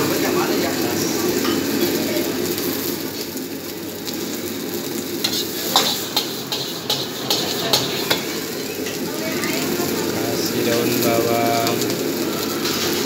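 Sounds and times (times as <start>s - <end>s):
gas burner roaring: 0.0s - 13.0s
rice sizzling in a wok: 0.0s - 13.0s
ladle scraping wok: 5.1s - 13.0s
ladle clanking on wok: 5.2s - 9.2s.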